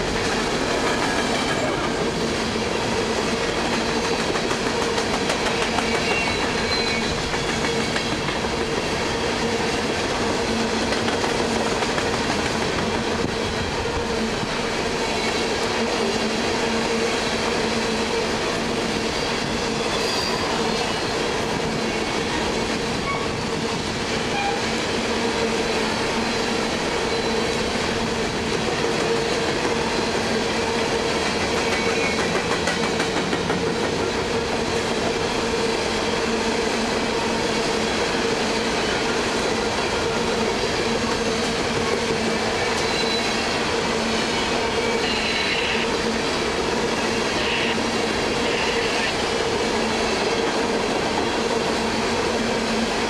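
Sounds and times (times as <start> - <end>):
train wheels clicking over rail joints: 2.9 - 16.6, 31.1 - 35.3.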